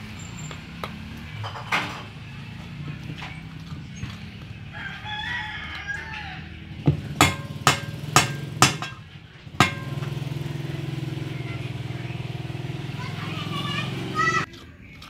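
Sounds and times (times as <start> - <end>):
low engine hum: 0.0 - 14.5
rooster crowing: 4.6 - 7.4
metal spoon striking steel bowl: 6.9 - 10.4.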